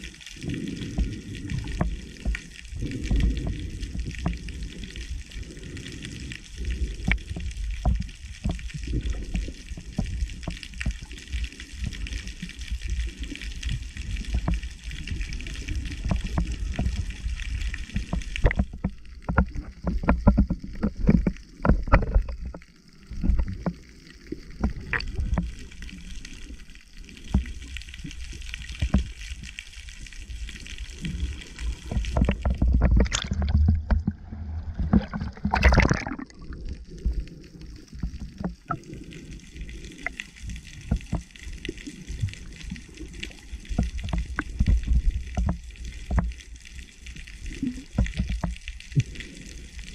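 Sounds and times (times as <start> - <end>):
muffled underwater rumble: 0.0 - 49.9
soft underwater knocks and thuds: 17.9 - 22.6, 31.9 - 36.5, 43.7 - 46.3
water splashing: 24.3 - 46.3.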